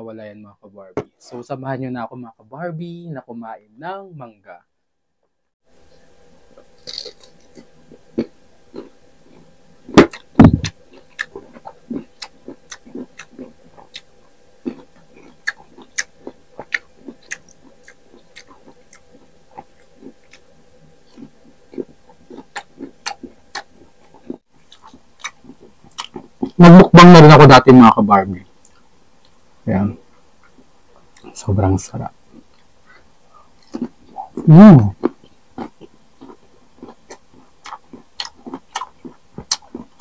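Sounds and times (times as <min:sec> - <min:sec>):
crunching green mango: 0:06.8 - 0:14.1, 0:33.6 - 0:40.0.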